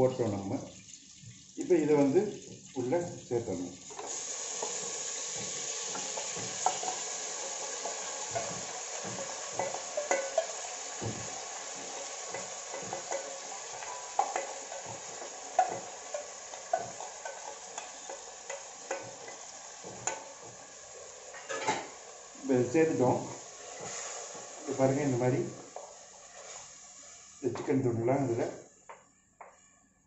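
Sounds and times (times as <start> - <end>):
chicken sizzling in oil: 0.0 - 28.5
utensil scraping pot: 3.9 - 20.7, 23.0 - 27.4.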